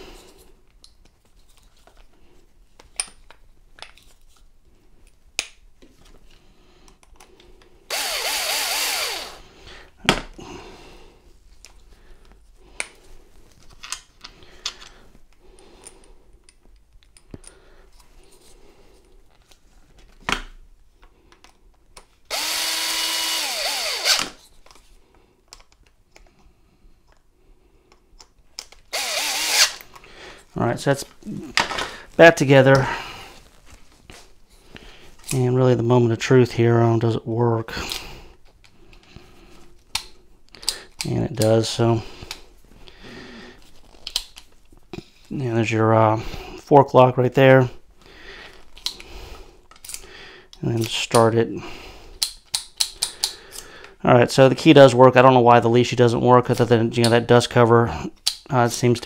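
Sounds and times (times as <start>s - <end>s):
cordless drill motor spinning: 7.9s - 9.4s, 22.3s - 24.4s, 28.9s - 29.8s.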